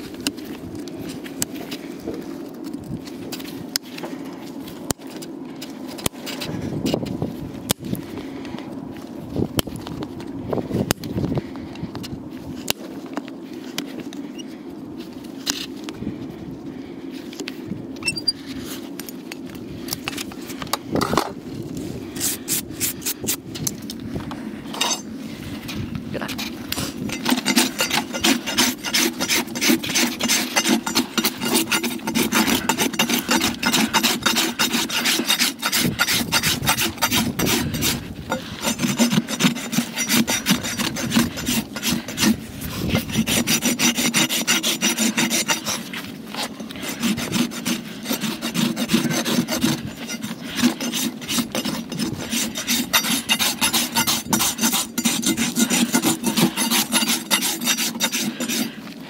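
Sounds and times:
rasp filing a hoof: 26.3s - 59.0s.

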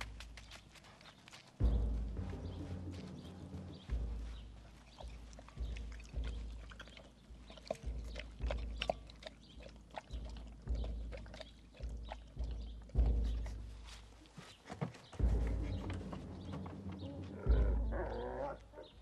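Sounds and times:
dog chewing and slurping: 0.0s - 1.7s, 4.7s - 14.4s
low thumps: 1.6s - 19.0s.

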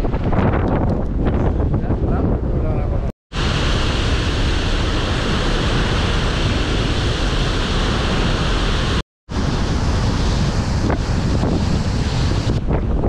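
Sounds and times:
waterfall roaring: 3.4s - 12.6s.

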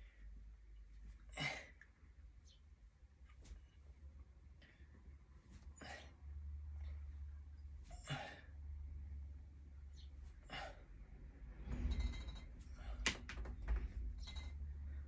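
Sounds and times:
low hum: 2.2s - 15.0s
palms slapping together: 13.0s - 13.8s.

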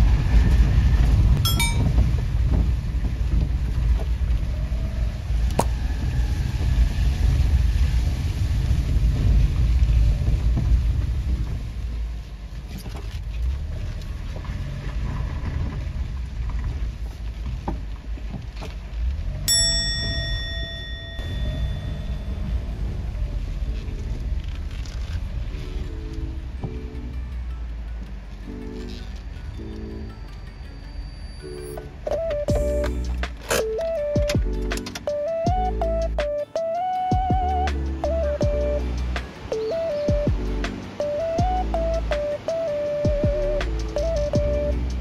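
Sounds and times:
wind buffeting microphone: 0.0s - 12.3s
van engine and tyre rumble: 0.0s - 45.0s
short ringing chime: 1.4s - 2.0s, 19.5s - 22.6s.

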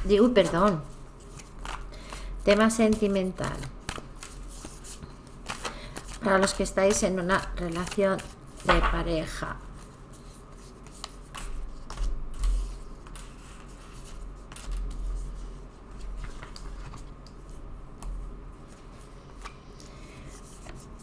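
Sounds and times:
cards rustling on tabletop: 0.2s - 9.0s, 9.8s - 17.1s.

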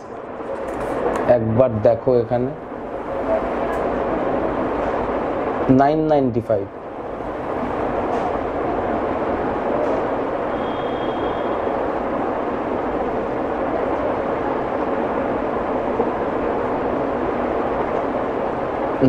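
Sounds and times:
steady rushing noise: 0.0s - 19.0s
faint high whistle: 10.4s - 11.7s.

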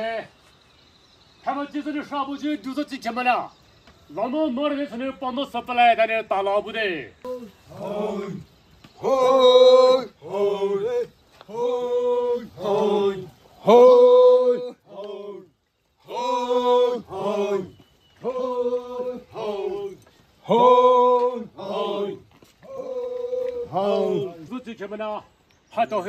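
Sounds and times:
man singing a chant: 9.0s - 24.3s.

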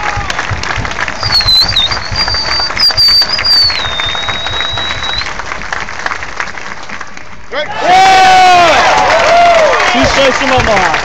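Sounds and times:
crowd clapping and cheering: 0.0s - 11.0s
shrill whistle: 1.2s - 5.3s.

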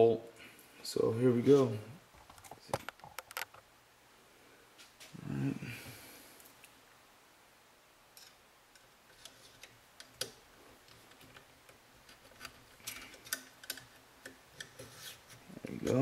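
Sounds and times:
metal clicks and scrapes: 8.2s - 16.0s.

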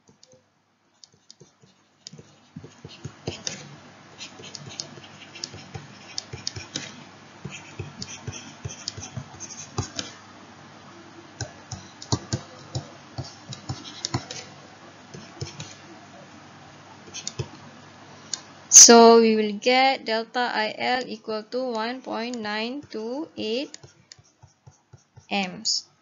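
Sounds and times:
faint steady hiss: 0.0s - 26.0s
stylus tapping on tablet screen: 4.2s - 10.2s, 11.4s - 14.4s, 23.7s - 25.4s.

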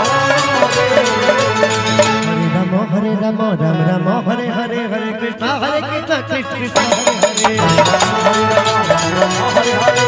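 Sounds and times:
man singing devotional melody: 0.0s - 10.0s.

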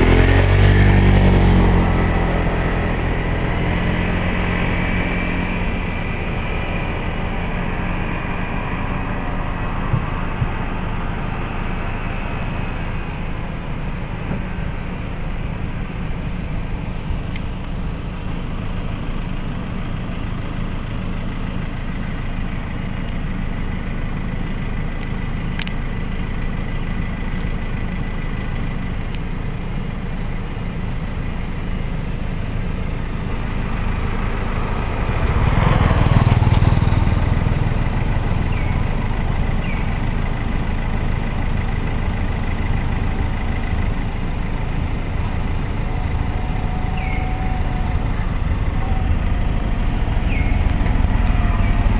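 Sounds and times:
vehicle passing: 0.0s - 16.2s, 33.0s - 51.9s
truck engine rumbling: 0.0s - 51.9s.

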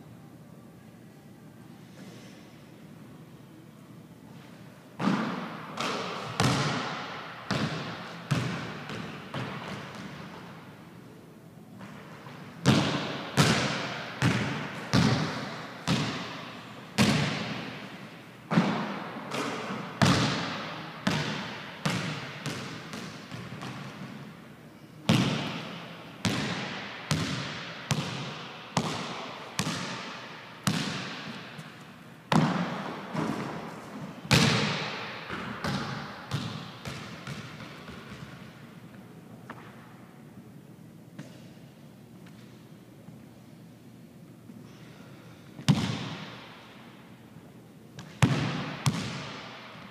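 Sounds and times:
basketball bouncing on gym floor: 5.0s - 10.4s, 11.8s - 24.4s, 25.0s - 38.6s, 45.6s - 46.6s, 48.0s - 49.8s.

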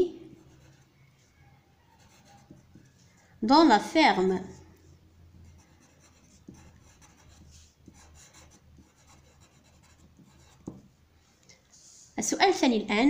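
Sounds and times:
pencil scratching on paper: 0.4s - 1.0s, 1.9s - 3.1s, 5.3s - 10.9s.

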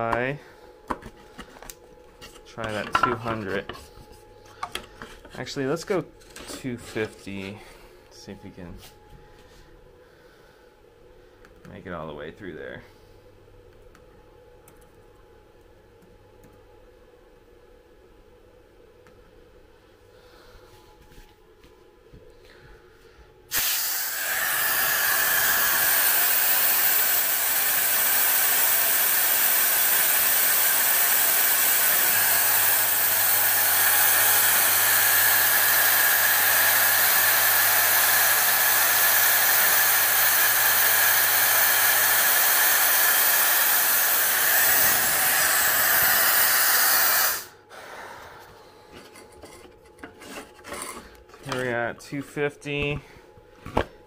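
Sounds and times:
compressed air hissing from nozzle: 23.5s - 48.0s.

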